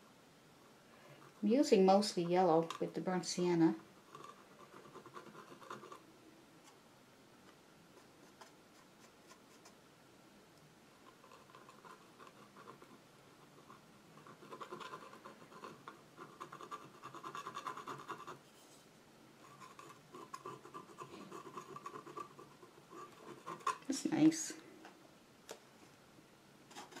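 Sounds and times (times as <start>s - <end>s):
palette knife scraping paint: 4.1s - 6.0s, 19.4s - 23.9s, 26.7s - 27.0s.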